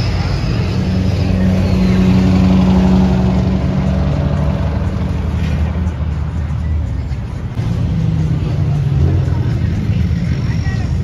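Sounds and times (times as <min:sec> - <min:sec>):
vehicle engine driving past: 0:00.0 - 0:06.4.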